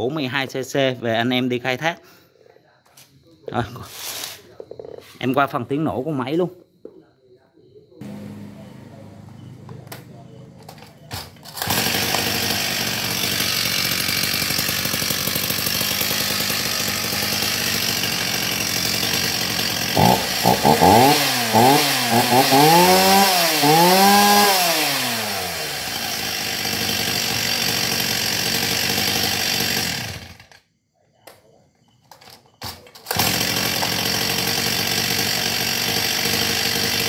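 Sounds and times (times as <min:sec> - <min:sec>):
chainsaw engine idling and revving: 0:08.0 - 0:30.6, 0:33.1 - 0:37.0.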